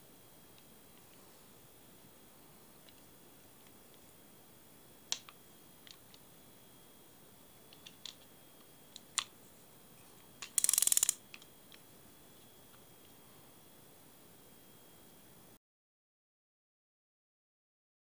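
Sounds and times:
fishing reel clicks and taps: 10.4 - 11.2
rapid ratchet clicking: 10.4 - 11.2.

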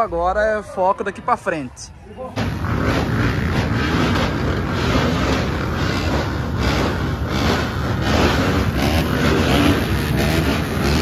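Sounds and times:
motorcycle engines running: 2.3 - 11.0.

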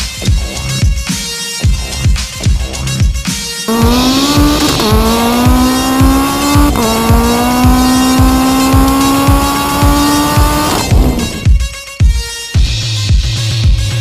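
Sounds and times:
car engine revving: 3.7 - 11.6
faint music beat: 3.7 - 12.2.

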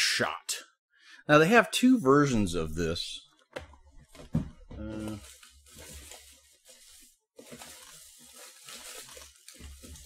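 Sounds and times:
packaging rustling and crinkling: 4.1 - 10.0.

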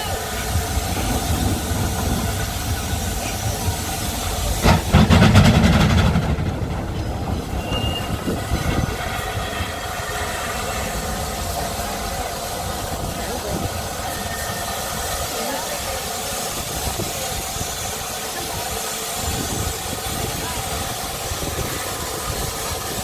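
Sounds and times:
rapid locomotive exhaust beats: 0.0 - 23.0
steam hissing: 0.0 - 23.0.

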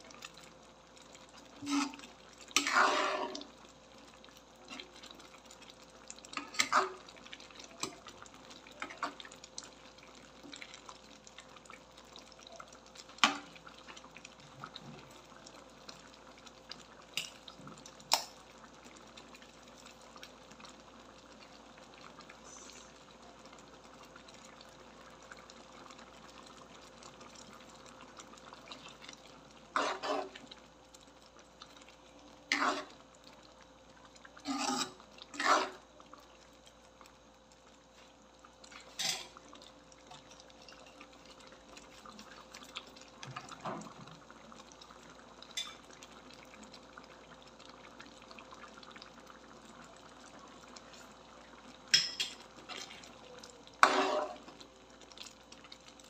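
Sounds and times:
stew sloshing while stirred: 1.1 - 5.4, 25.9 - 33.3, 34.1 - 36.2, 51.9 - 56.0
ladle scraping pan: 1.6 - 3.5, 29.7 - 30.4, 32.5 - 33.0, 34.4 - 35.8, 53.8 - 54.5.

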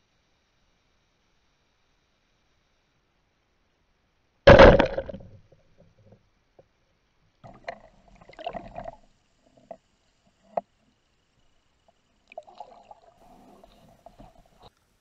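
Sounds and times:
speargun firing crack underwater: 4.5 - 5.4.

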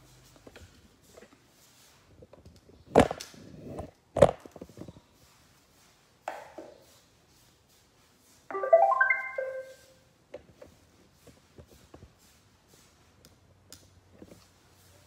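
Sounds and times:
robot vacuum start-up tune: 8.5 - 9.9.

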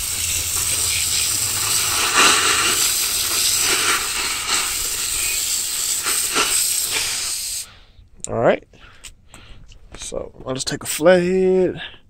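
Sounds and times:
hose spraying water on metal: 0.0 - 7.7.

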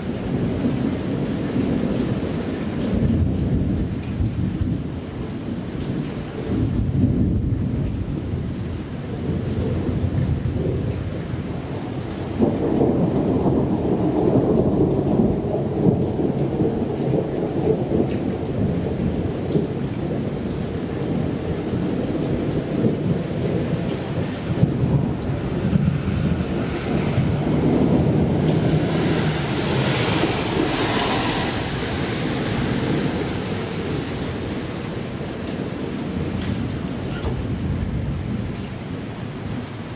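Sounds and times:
steady rain: 0.0 - 39.9
thunder rumbling: 0.0 - 39.9.

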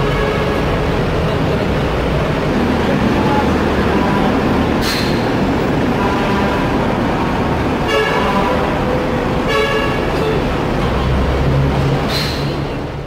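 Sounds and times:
vehicle horn toots: 0.0 - 0.7, 7.8 - 11.4
street traffic noise: 0.0 - 13.0.

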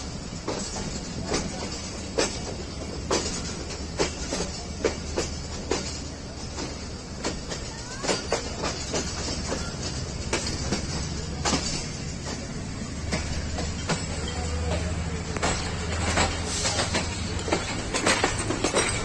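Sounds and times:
low train rumble: 0.0 - 19.0
train wheels clacking over rail joints: 0.0 - 19.0
faint wheel squeal: 9.3 - 10.1.

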